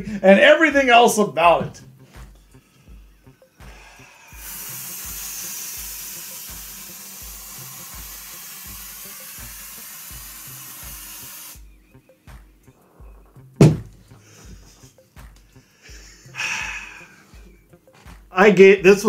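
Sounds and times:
backing track with low beat: 0:00.0 - 0:04.1, 0:11.6 - 0:19.0
aerosol spray can hissing: 0:03.6 - 0:11.7.

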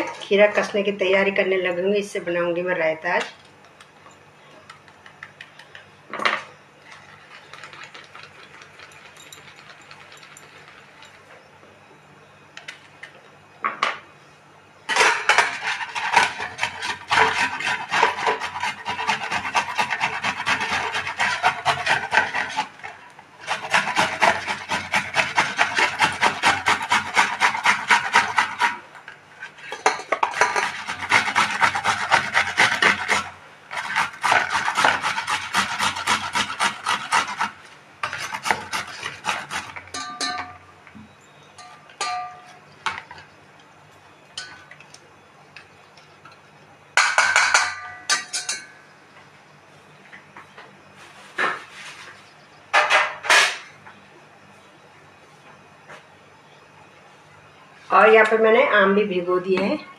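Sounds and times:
cucumber grated on metal grater: 0:15.4 - 0:22.8, 0:23.4 - 0:28.8, 0:30.3 - 0:39.9.

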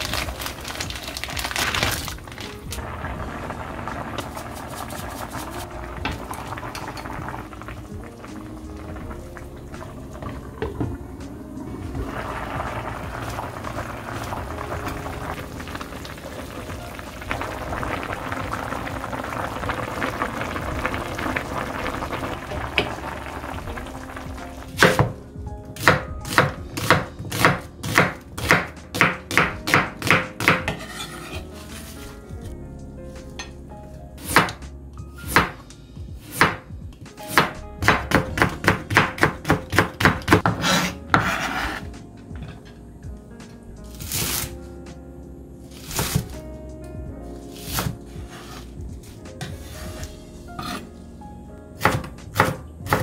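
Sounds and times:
soup bubbling in a pan: 0:00.0 - 0:25.2.

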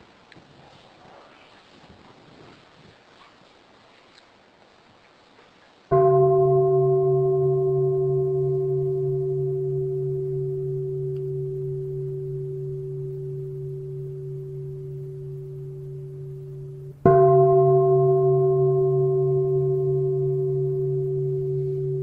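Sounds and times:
singing bowl ringing: 0:05.9 - 0:22.0.

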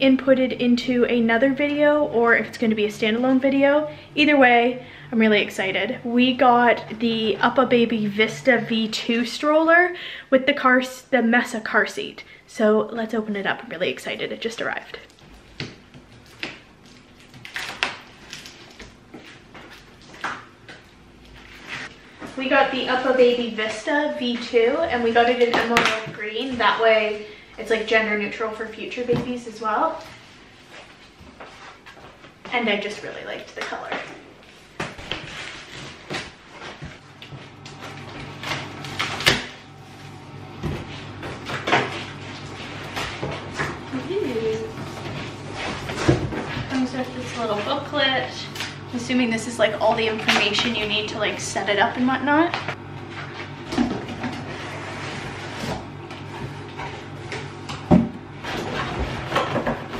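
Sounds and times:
cardboard scraping and rustling: 0:53.2 - 0:57.2.

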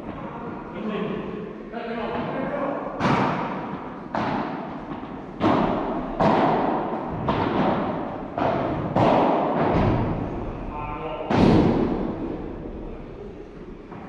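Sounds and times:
rackets hitting ball: 0:02.1 - 0:10.6, 0:11.3 - 0:12.7.

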